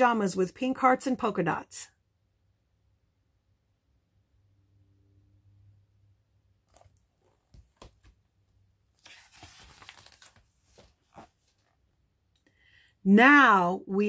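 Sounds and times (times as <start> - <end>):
soft clicks of book handling: 6.6 - 8.2
page turning rustle: 6.7 - 8.2, 8.9 - 11.8.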